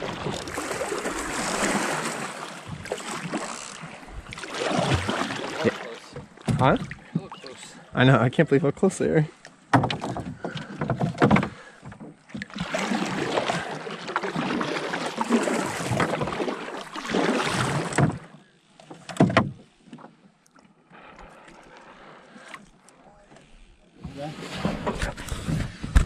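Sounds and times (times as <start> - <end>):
paddle splashing water: 0.0 - 7.9, 9.7 - 25.8
paddle knocking against hull: 6.1 - 7.4, 9.7 - 13.6, 14.4 - 18.3, 18.9 - 20.1.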